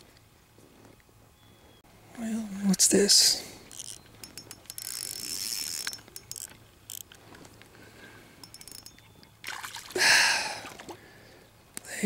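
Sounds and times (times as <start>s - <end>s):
fishing reel clicking and whirring: 3.7s - 7.2s, 8.4s - 9.0s.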